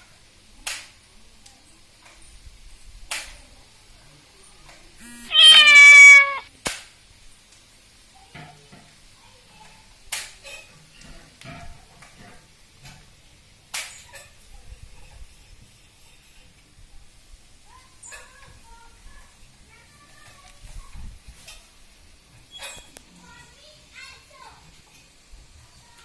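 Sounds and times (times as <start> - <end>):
cat meowing: 5.0 - 6.5.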